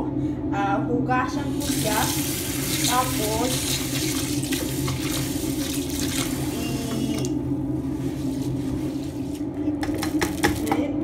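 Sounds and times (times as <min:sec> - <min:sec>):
steady low hum: 0:00.0 - 0:11.0
tap water pouring into bowl: 0:01.6 - 0:07.3.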